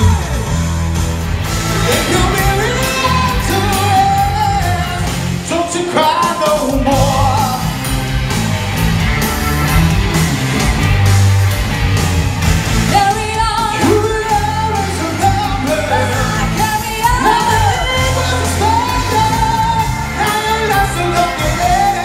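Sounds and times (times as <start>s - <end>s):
bass guitar: 0.0s - 22.0s
drums: 0.0s - 22.0s
electric guitar: 0.0s - 22.0s
keyboard: 0.0s - 22.0s
person singing: 1.8s - 7.7s, 12.9s - 22.0s.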